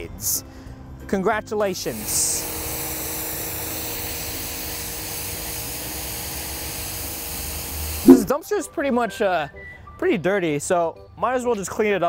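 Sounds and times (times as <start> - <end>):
water jet hissing on pavement: 3.2 - 8.1.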